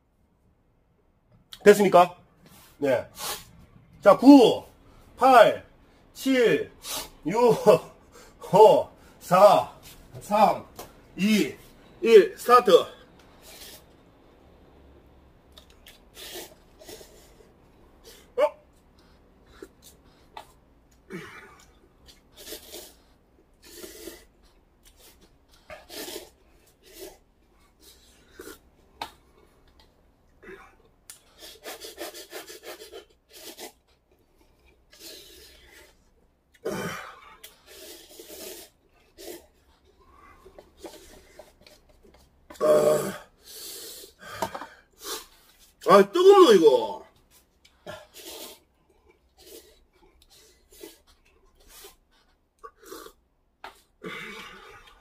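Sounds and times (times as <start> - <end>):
man slurping noodles: 15.6 - 18.4, 19.4 - 28.8, 31.2 - 41.9, 42.6 - 45.6, 47.9 - 52.0, 52.6 - 53.2, 53.8 - 55.0.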